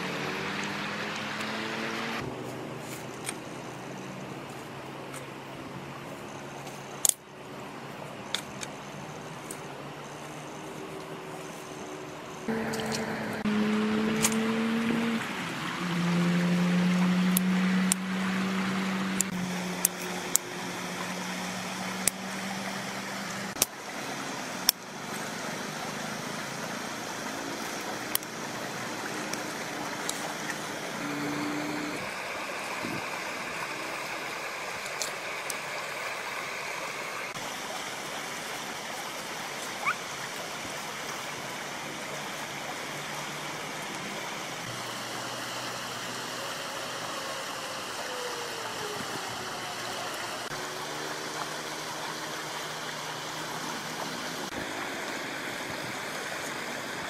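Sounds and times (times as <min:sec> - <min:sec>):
river rushing: 0:00.0 - 0:57.0.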